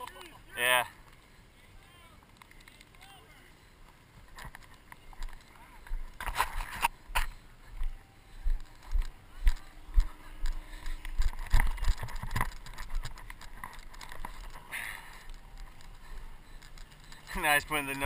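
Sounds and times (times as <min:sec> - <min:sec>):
wind: 0:00.0 - 0:18.0
camera handling noise: 0:06.1 - 0:07.3, 0:08.6 - 0:17.3.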